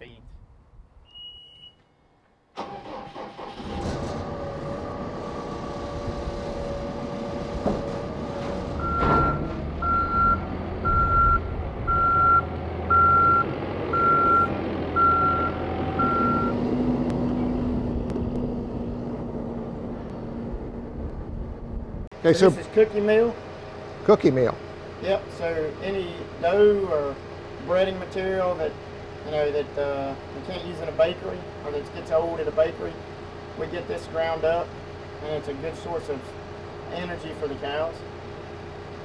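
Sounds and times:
reversing alarm beeping: 1.1 - 1.8, 8.8 - 16.6
diesel engine running: 2.6 - 39.0.

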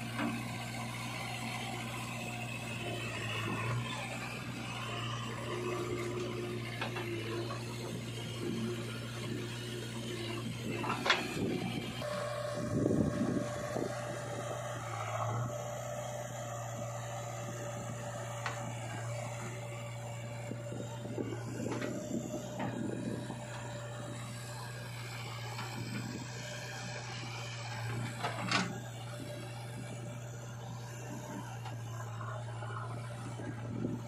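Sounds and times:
diesel engine running: 0.0 - 34.0
steady whine: 2.5 - 26.3.

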